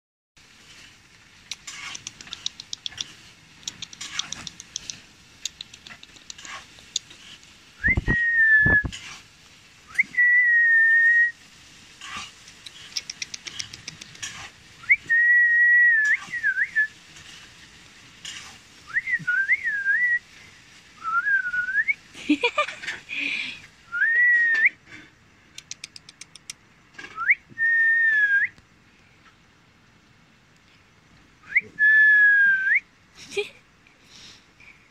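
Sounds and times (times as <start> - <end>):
clicking sounds: 1.5 - 7.5, 12.5 - 14.4, 25.5 - 27.3
person whistling: 7.8 - 8.9, 9.9 - 11.3, 14.8 - 16.9, 18.9 - 20.2, 21.0 - 22.0, 23.9 - 24.8, 27.2 - 28.6, 31.4 - 32.8.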